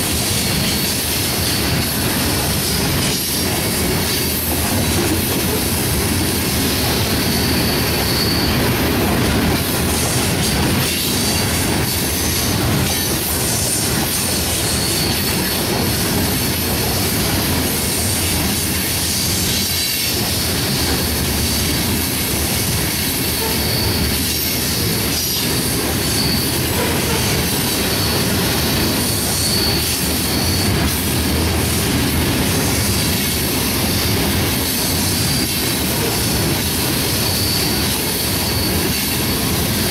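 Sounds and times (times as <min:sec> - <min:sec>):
train wheels rumbling on rail: 0:00.0 - 0:39.9
high wheel squeals: 0:06.5 - 0:09.2, 0:09.8 - 0:16.7, 0:23.0 - 0:31.2, 0:32.5 - 0:39.8.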